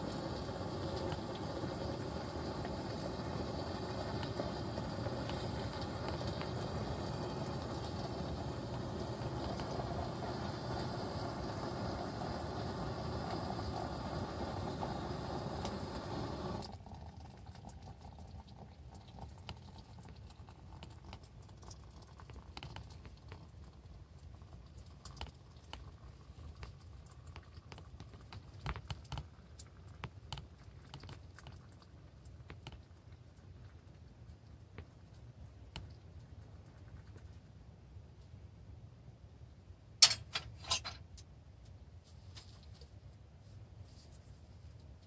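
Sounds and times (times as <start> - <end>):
gas stove burner hissing: 0.0 - 16.7
metal pot and mug clicks: 40.0 - 41.0.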